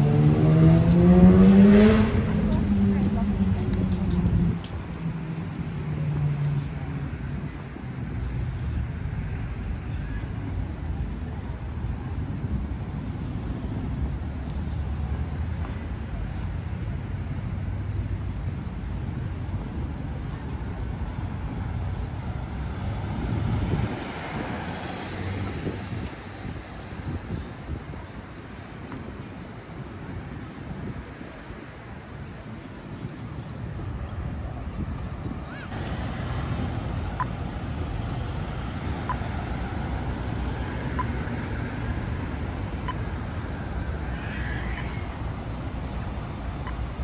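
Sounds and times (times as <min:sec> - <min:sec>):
car passing close by: 0:00.0 - 0:04.5, 0:22.0 - 0:26.6
traffic rumble: 0:00.0 - 0:47.0
crossing signal short beeps: 0:40.9 - 0:41.2, 0:42.8 - 0:43.1, 0:46.6 - 0:46.9.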